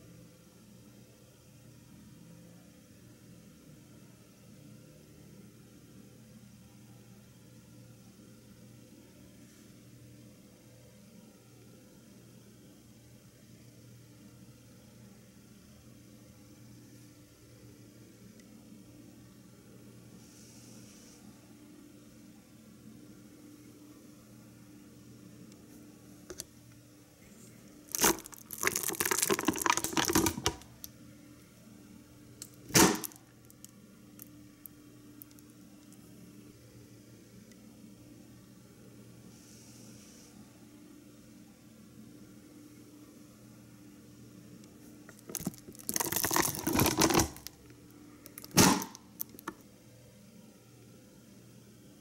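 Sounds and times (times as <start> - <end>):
banana peel tearing: 27.9 - 30.7
plastic membrane crinkling: 27.9 - 30.9, 45.1 - 49.5
sharp crack: 32.7 - 33.2, 48.4 - 49.0
air cannon pop-whoosh: 48.6 - 48.9.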